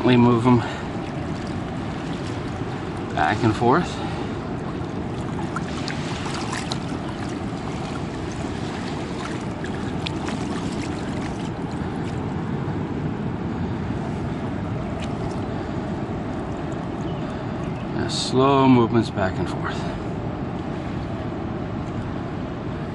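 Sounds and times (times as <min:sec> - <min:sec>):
wind on microphone: 0:00.0 - 0:18.0
fast river water rushing: 0:00.0 - 0:22.9.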